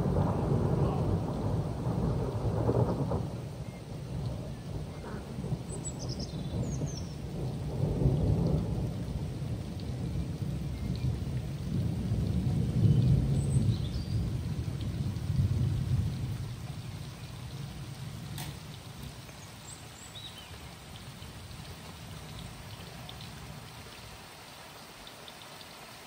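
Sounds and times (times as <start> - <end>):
thunder rumbling: 0.0 - 19.3
steady rain: 0.0 - 26.0.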